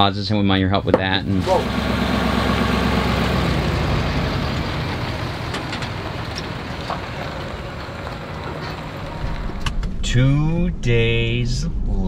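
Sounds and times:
truck engine running low: 0:01.0 - 0:10.0.

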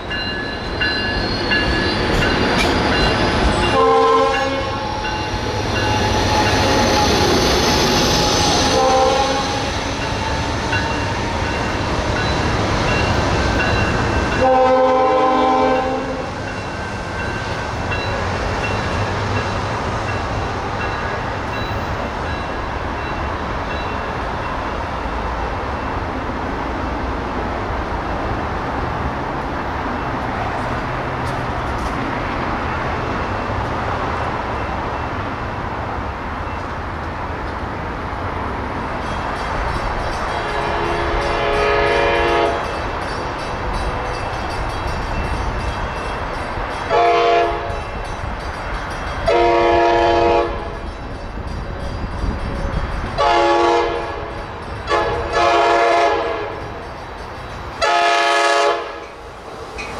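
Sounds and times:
train rumbling on rails: 0:00.0 - 0:59.9
train horn blasts: 0:03.7 - 0:05.2, 0:08.6 - 0:09.8, 0:14.4 - 0:16.4, 0:40.4 - 0:42.8, 0:46.9 - 0:47.8, 0:49.2 - 0:50.8, 0:53.2 - 0:56.7, 0:57.8 - 0:59.1.

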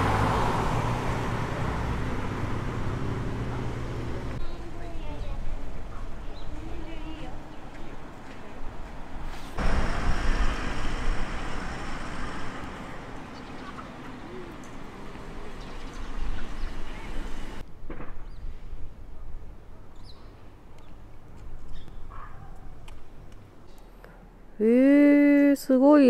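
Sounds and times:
street background sound: 0:00.0 - 0:26.0
rushing noise with low rumble: 0:09.3 - 0:15.4.

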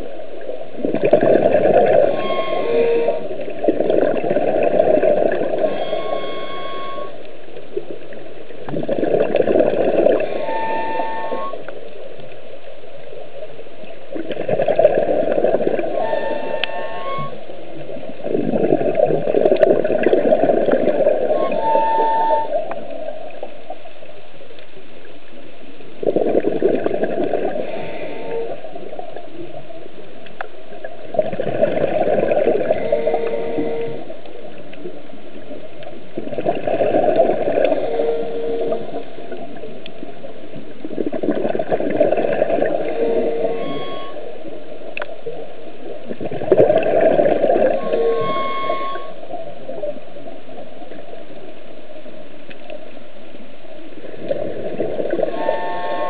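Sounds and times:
exhaled bubbles rumbling underwater: 0:00.0 - 0:56.0
squeaky regulator tones: 0:01.9 - 0:03.6, 0:05.2 - 0:07.3, 0:10.2 - 0:11.7, 0:15.8 - 0:17.6, 0:21.2 - 0:23.0, 0:32.6 - 0:34.3, 0:37.7 - 0:39.2, 0:42.8 - 0:44.6, 0:47.6 - 0:49.8, 0:55.2 - 0:56.0.

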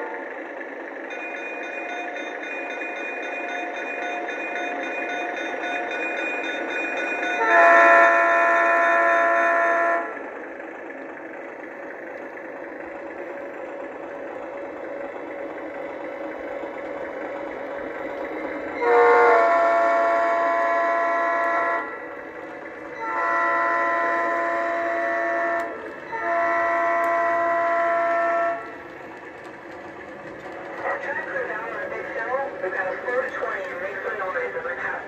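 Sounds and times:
model train diesel running sound: 0:00.0 - 0:35.0
train horn blasts: 0:07.3 - 0:10.3, 0:18.8 - 0:22.0, 0:22.9 - 0:28.8.

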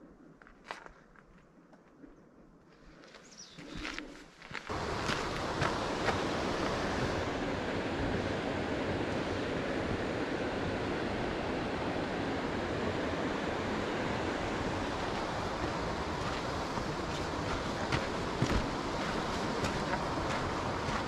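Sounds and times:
whitewater rushing: 0:04.7 - 0:21.0.

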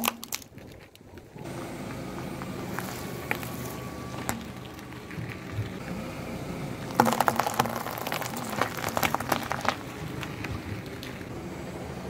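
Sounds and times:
tyre crushing cucumber: 0:06.9 - 0:11.2.

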